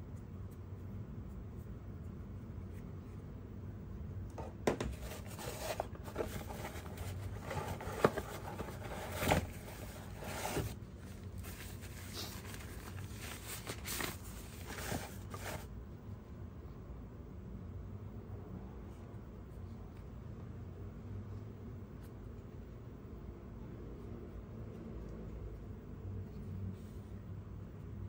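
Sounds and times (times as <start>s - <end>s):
scrapes and knocks on cardboard: 4.4s - 10.8s
wrapping rustling and crinkling: 4.9s - 15.7s.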